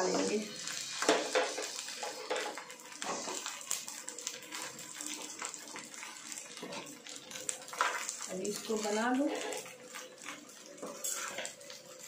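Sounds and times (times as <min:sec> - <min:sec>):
rice sizzling in frying pan: 0:00.0 - 0:12.0
spatula scraping and tapping pan: 0:01.0 - 0:03.5, 0:05.4 - 0:08.3, 0:09.3 - 0:11.9.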